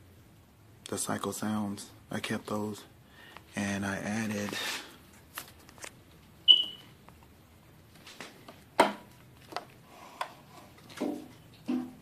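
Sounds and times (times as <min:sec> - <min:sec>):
short high squeak: 0:06.5 - 0:06.8.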